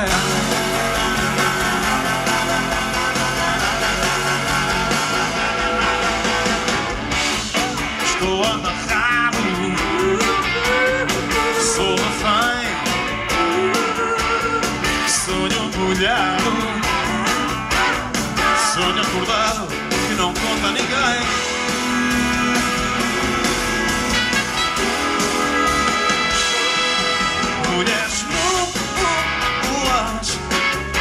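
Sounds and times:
wavering lead melody: 0:00.0 - 0:08.0, 0:21.2 - 0:29.2
live pop-rock band playing: 0:00.0 - 0:31.0.

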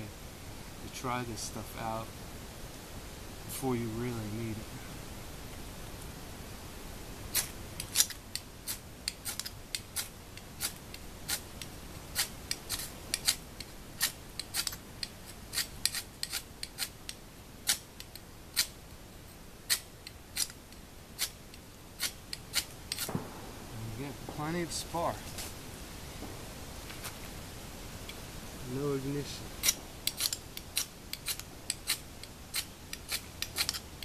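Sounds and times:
fire-starter rod scraping: 0:28.8 - 0:34.0.

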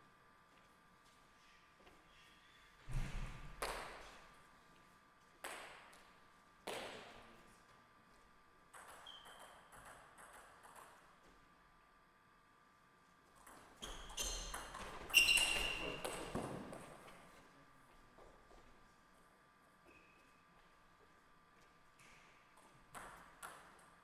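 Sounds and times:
table tennis ball bouncing: 0:08.7 - 0:11.1, 0:13.4 - 0:17.0, 0:22.9 - 0:23.9.

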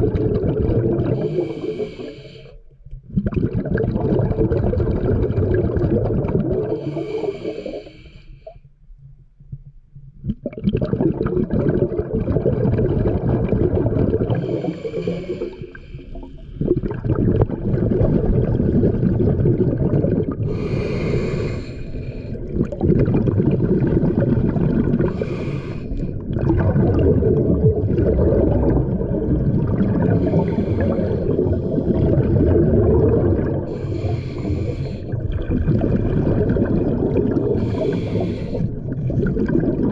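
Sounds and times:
underwater exhale bubbling: 0:00.0 - 0:08.6, 0:10.2 - 0:39.9
regulator inhalation hiss: 0:01.2 - 0:02.6, 0:06.8 - 0:08.5, 0:14.4 - 0:16.4, 0:20.5 - 0:22.4, 0:25.1 - 0:26.1, 0:30.2 - 0:31.3, 0:33.8 - 0:35.2, 0:37.6 - 0:38.7.

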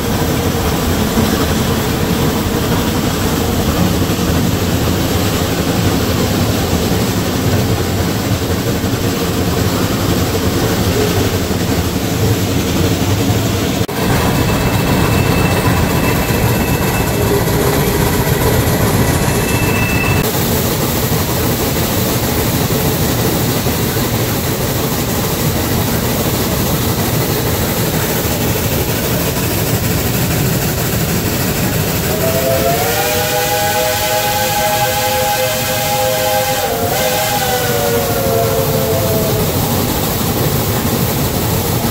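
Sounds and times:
steam locomotive working hard: 0:00.0 - 0:41.9
steam whistle: 0:32.0 - 0:39.8.

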